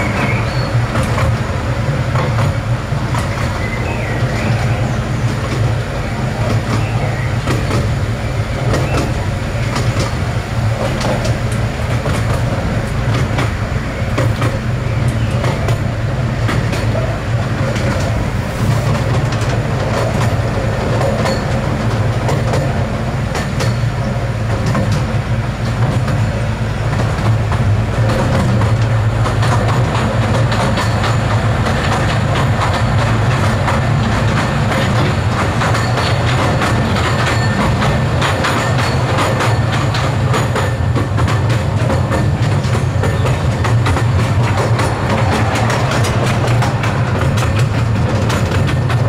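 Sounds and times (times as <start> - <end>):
miniature train rumbling: 0.0 - 49.0
wheels clicking on track: 0.0 - 49.0.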